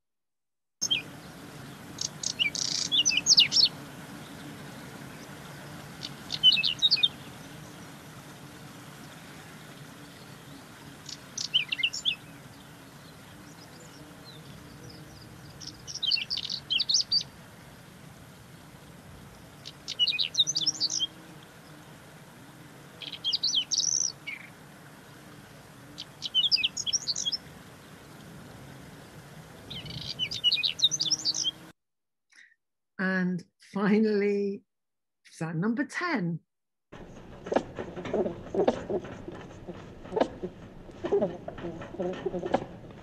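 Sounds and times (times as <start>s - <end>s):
bird singing high notes: 19.9s - 21.1s, 29.7s - 31.6s.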